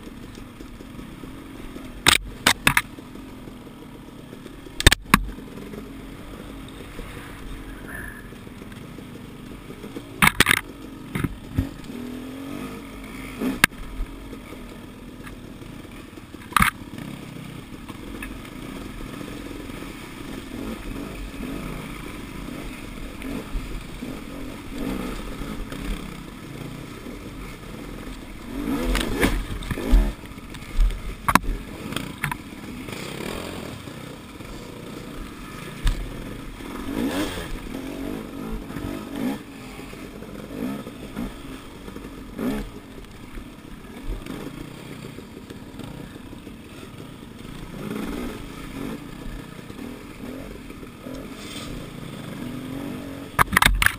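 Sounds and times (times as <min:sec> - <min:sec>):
dirt bike engine revving: 0:00.0 - 0:53.9
bike knocking over rough ground: 0:10.2 - 0:11.8.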